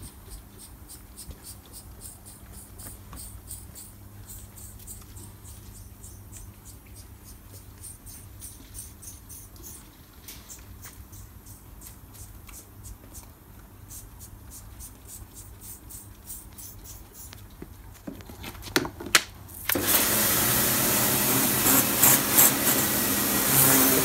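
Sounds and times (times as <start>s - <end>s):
pressure washer hissing: 19.8s - 24.0s
spray bottle squirting: 21.3s - 24.0s.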